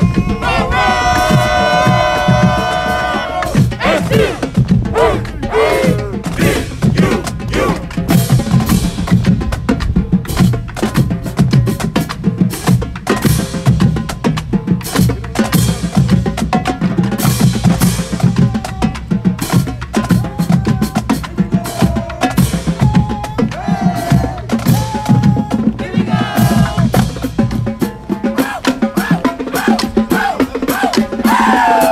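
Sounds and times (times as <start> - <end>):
held brass notes: 0.0 - 9.1
snare and bass drums cadence: 0.0 - 31.9.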